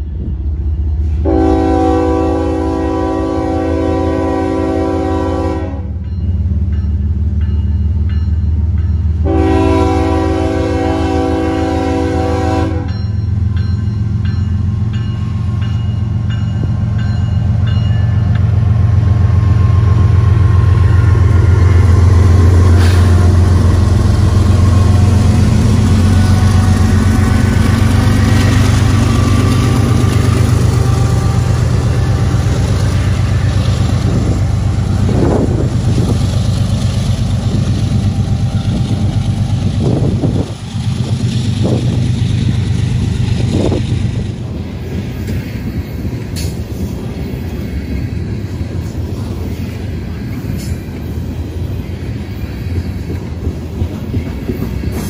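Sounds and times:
locomotive engine rumble: 0.0 - 55.0
train wheels on rails: 0.0 - 55.0
locomotive air horn blast: 1.0 - 5.9, 9.2 - 13.0.

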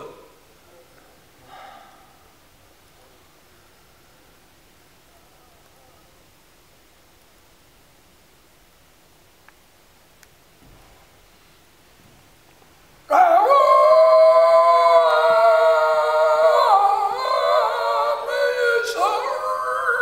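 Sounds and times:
men vocalising high held tones: 0.0 - 0.4, 13.1 - 20.0.

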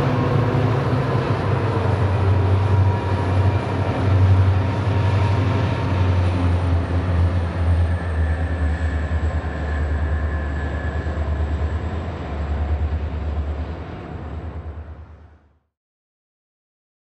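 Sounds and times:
freight wagons rumbling: 0.0 - 15.0
diesel locomotives droning: 0.0 - 15.6.

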